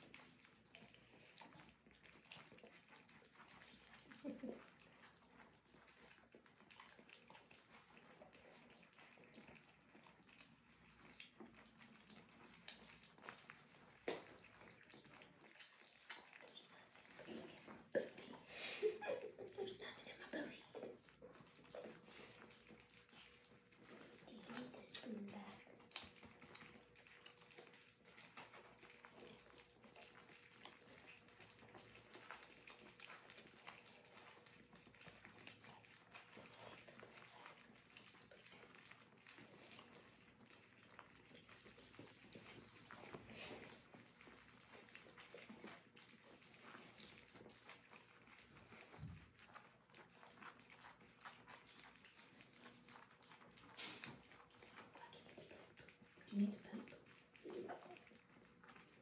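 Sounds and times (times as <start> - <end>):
puppies lapping food: 0.0 - 59.0.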